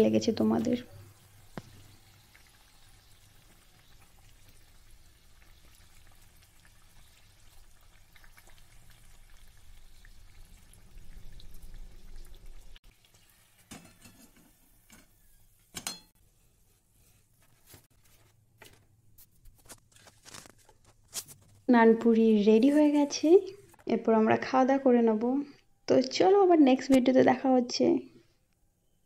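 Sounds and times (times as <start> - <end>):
deep-frying sizzle with crackles: 0.0 - 18.0.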